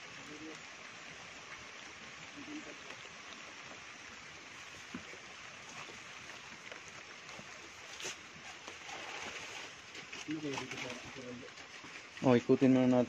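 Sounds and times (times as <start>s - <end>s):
heavy rain on foliage: 0.0s - 13.0s
leaves rustling: 0.0s - 13.0s
footsteps through wet vegetation: 4.4s - 12.7s.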